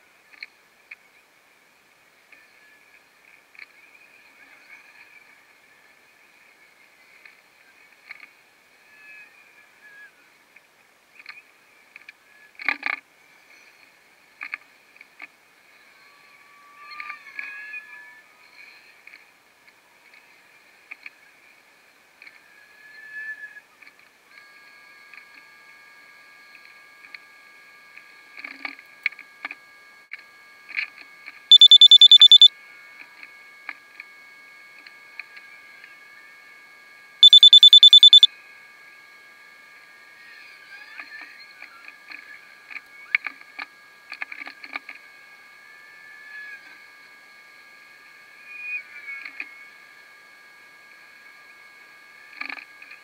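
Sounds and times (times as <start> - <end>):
short high electronic beeps: 31.5 - 32.5, 37.2 - 38.3
steady high hum: 31.5 - 32.5, 37.2 - 38.3
steady high whine: 37.2 - 38.3.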